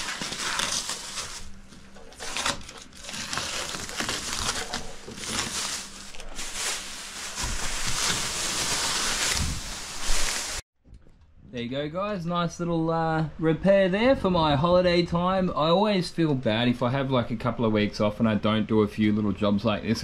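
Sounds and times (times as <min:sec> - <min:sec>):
plastic film crinkling: 0:00.0 - 0:10.6.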